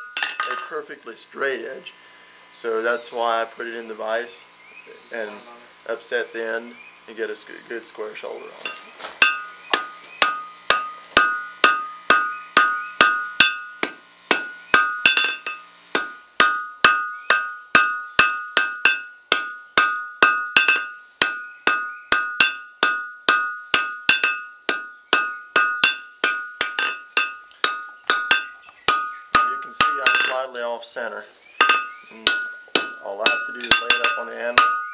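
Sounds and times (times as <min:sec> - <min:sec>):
hammer striking iron on anvil: 0:00.0 - 0:00.7, 0:08.6 - 0:30.7, 0:31.6 - 0:34.9
anvil ringing: 0:00.0 - 0:00.8, 0:08.6 - 0:30.7, 0:31.6 - 0:34.9.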